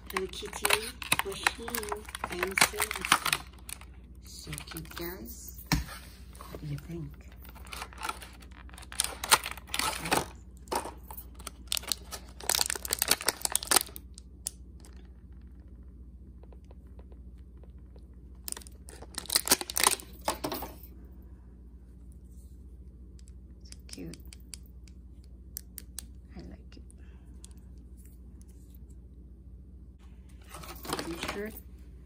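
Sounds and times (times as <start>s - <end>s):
plastic packaging crinkling: 0.0s - 5.1s, 7.3s - 14.2s, 18.4s - 20.4s, 30.4s - 31.5s.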